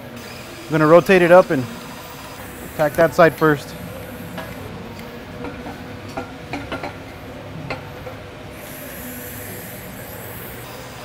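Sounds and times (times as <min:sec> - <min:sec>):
steady background noise: 0:00.0 - 0:11.0
metal pipe clicking and scraping: 0:04.3 - 0:07.1, 0:07.7 - 0:08.2.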